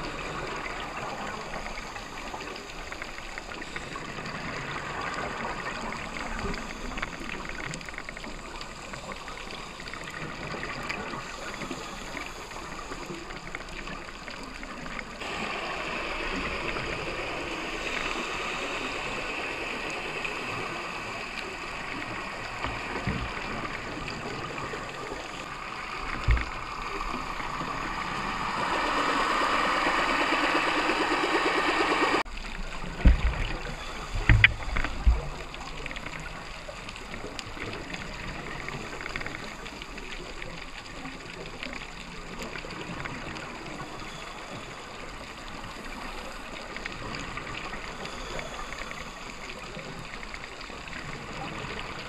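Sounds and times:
regulator breathing and bubbles: 0:00.0 - 0:52.0
dull underwater knocks: 0:33.0 - 0:33.5.

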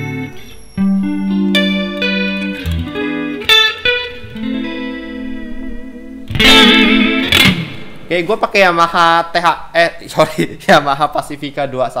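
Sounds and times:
electric guitar playing: 0:00.0 - 0:08.4.

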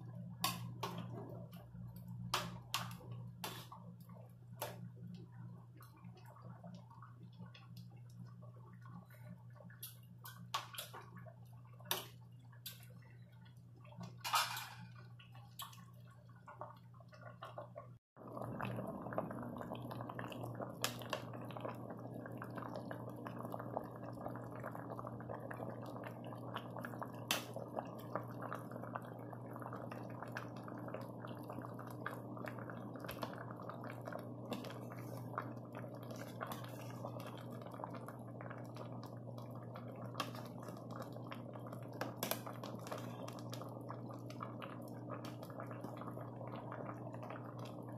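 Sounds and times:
low steady hum: 0:00.0 - 0:47.9
soup bubbling in pot: 0:00.0 - 0:47.9.

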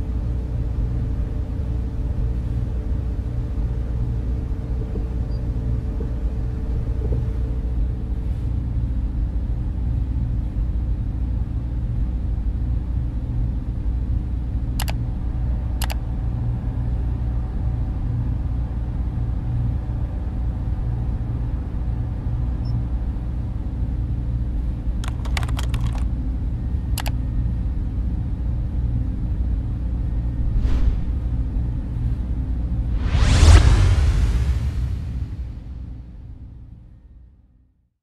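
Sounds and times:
low rumbling drone: 0:00.0 - 0:24.9, 0:26.2 - 0:37.4
sharp clicks: 0:14.8 - 0:15.0, 0:25.0 - 0:26.0, 0:27.0 - 0:27.2
whoosh: 0:30.2 - 0:32.2, 0:32.8 - 0:36.2.

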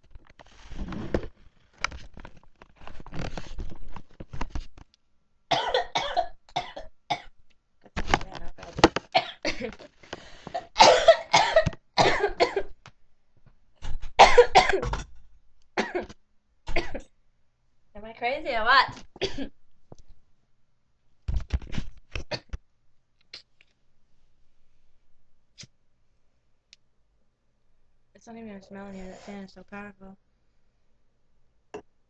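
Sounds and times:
harsh coughing: 0:05.5 - 0:07.3, 0:10.5 - 0:12.7, 0:13.8 - 0:15.1, 0:15.8 - 0:16.1, 0:16.7 - 0:17.1, 0:19.2 - 0:19.6.

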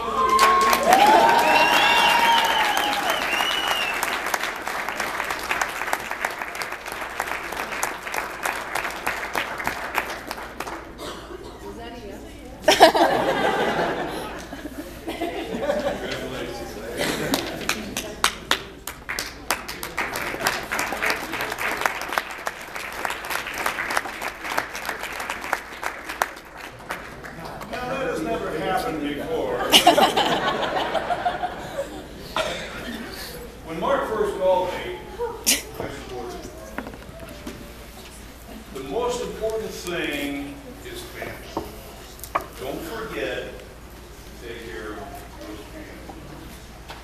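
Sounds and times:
high cheer: 0:00.0 - 0:05.0
audience applauding: 0:00.0 - 0:11.0, 0:17.3 - 0:28.0.

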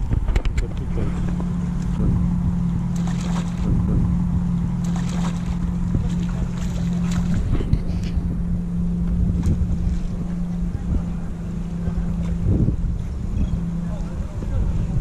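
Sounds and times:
boat engine idling hum: 0:00.0 - 0:15.0
water splashes: 0:00.0 - 0:15.0
wind rumbling on microphone: 0:00.0 - 0:15.0.

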